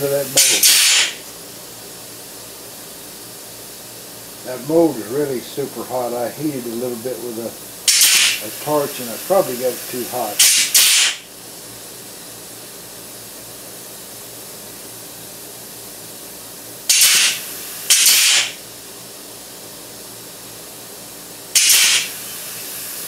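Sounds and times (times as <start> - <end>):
compressed air blasts: 0.0 - 1.4, 7.6 - 11.3, 16.8 - 18.7, 21.5 - 23.0
steady low hiss: 0.0 - 23.0.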